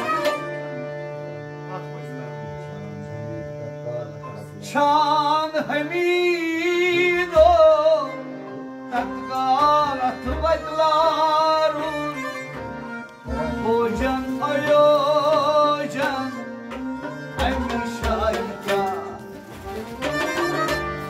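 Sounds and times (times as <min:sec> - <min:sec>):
harmonium: 0:00.0 - 0:21.0
man singing: 0:04.2 - 0:12.6, 0:13.2 - 0:20.8.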